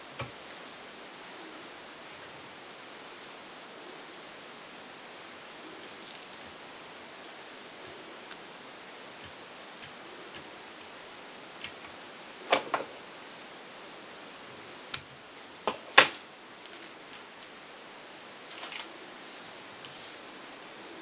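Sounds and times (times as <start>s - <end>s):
faint steady hiss: 0.0s - 21.0s.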